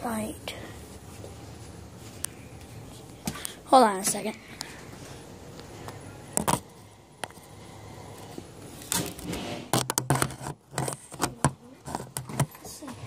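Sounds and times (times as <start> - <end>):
rustling scrape: 9.0 - 11.1.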